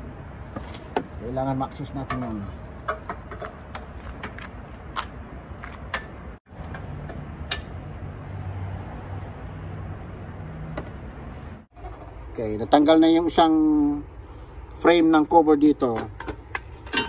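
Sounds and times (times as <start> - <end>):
low vehicle hum: 0.0 - 13.4.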